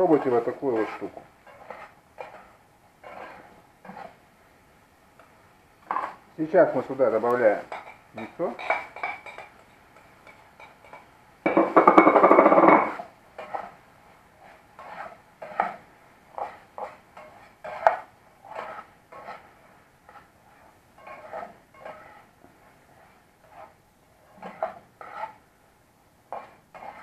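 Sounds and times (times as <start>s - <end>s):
utensil scraping china plate: 0.0s - 4.2s, 14.4s - 15.8s, 16.4s - 22.3s, 22.9s - 25.4s, 26.3s - 27.0s
spoon scraping and clinking pan: 0.1s - 4.2s, 7.6s - 13.8s, 16.4s - 19.4s, 21.0s - 22.3s, 23.0s - 25.4s, 26.3s - 27.0s.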